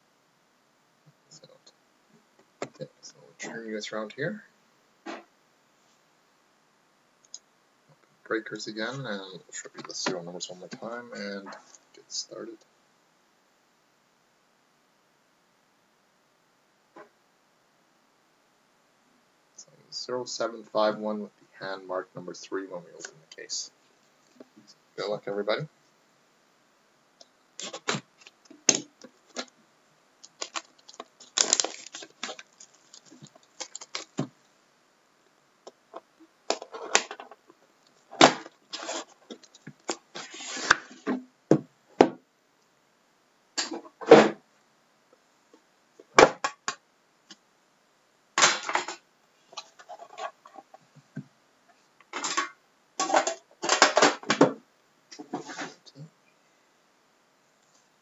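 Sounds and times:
plastic wrap crinkling: 30.2 - 34.3
cardboard scraping: 38.2 - 41.0.

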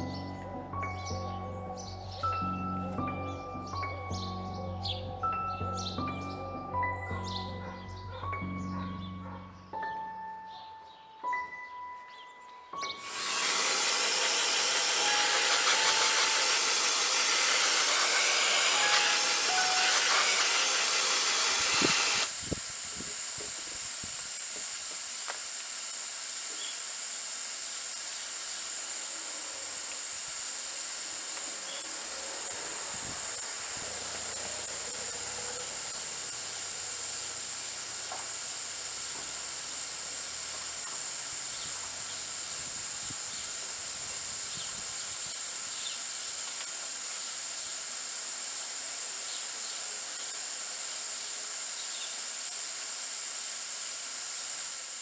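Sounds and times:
steam cleaner hissing: 12.9 - 55.0.

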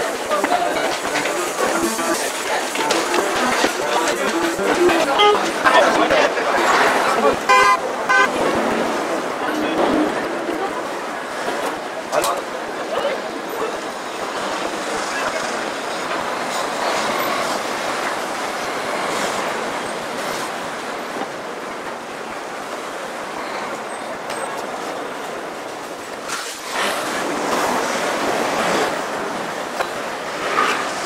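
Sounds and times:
pedestrian noise: 0.0 - 31.0
traffic rush: 0.0 - 31.0.

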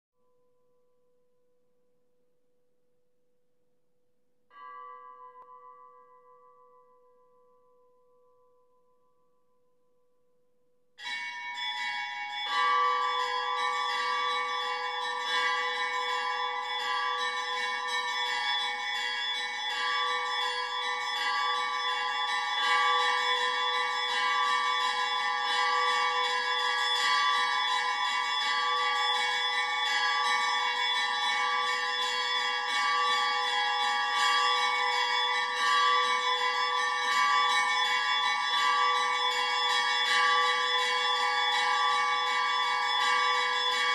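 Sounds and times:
church bells ringing: 12.2 - 43.9.

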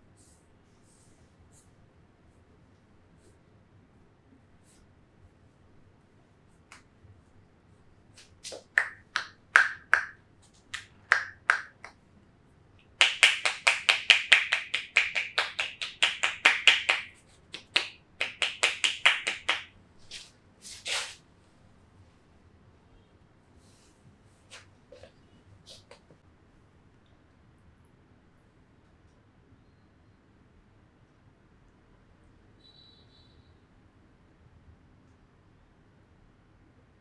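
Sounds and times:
hands slapping on body: 8.2 - 11.9, 13.0 - 20.2.

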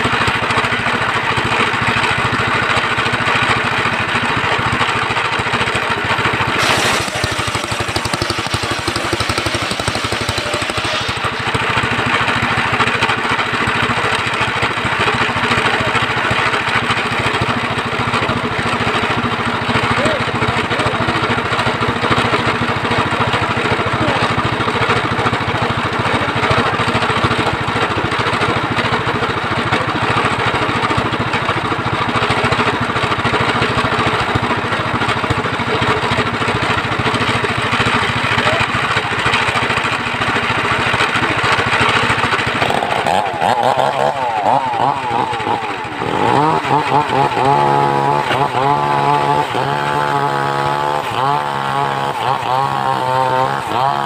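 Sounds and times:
engine-driven circular sawmill: 0.0 - 54.0.

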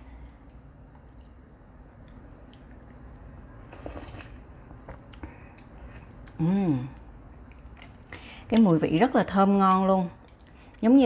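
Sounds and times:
person slurping from a spoon: 3.7 - 4.4.

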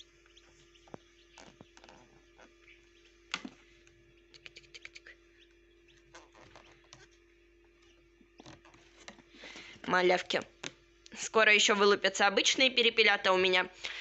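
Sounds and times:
steady low hum: 0.0 - 14.0
chicks pecking tapping clicks: 0.2 - 2.5, 3.3 - 7.1.

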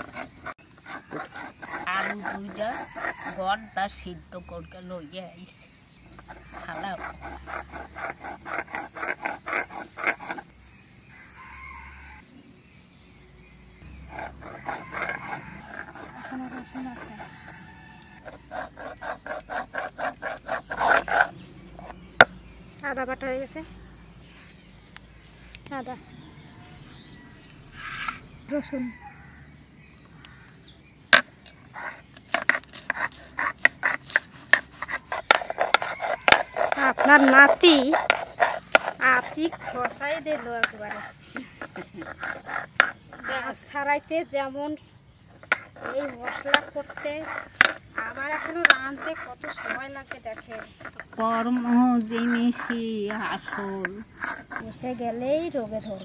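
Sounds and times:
stone grinder scraping: 0.0 - 4.1, 6.1 - 10.5, 13.9 - 22.3, 27.7 - 28.2, 31.2 - 43.7, 45.3 - 55.0.

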